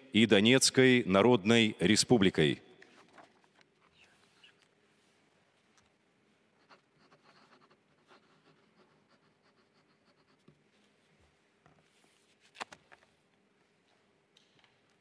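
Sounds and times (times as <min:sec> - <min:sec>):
pen scratching on paper: 0:06.6 - 0:10.5.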